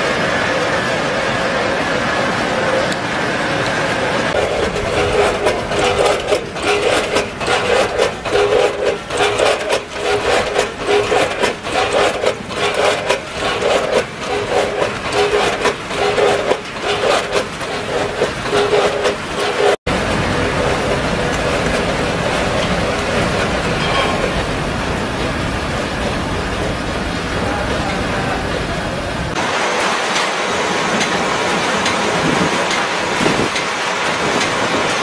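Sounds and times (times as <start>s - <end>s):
steady machine hum: 0.0s - 34.1s
rhythmic rattling and scraping: 4.3s - 24.6s.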